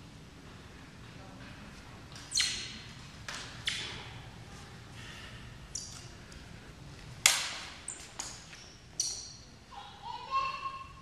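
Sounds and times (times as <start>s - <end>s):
fencing blades clashing: 7.2s - 9.5s.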